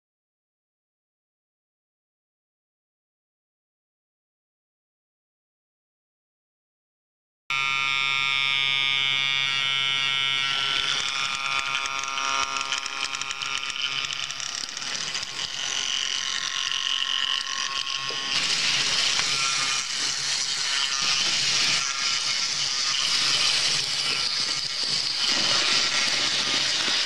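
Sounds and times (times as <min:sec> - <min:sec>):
electric train buzzing whine: 0:07.5 - 0:27.0.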